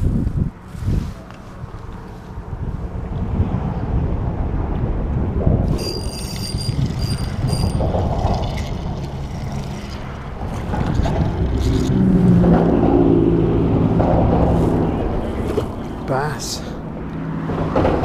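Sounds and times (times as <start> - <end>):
wind buffeting microphone: 0.0 - 16.1
low steady drone: 2.2 - 17.5
high squeaky chirps: 5.7 - 8.3.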